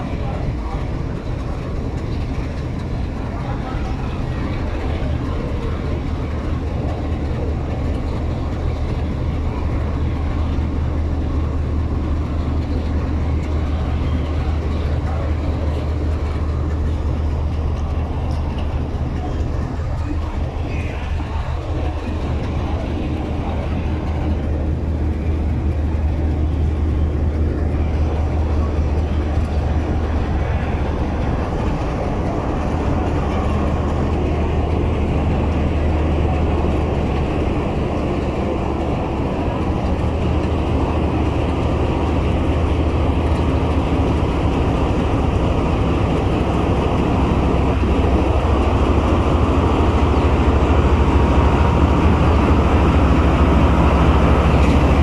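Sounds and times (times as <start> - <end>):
locomotive engine droning: 0.0 - 55.0.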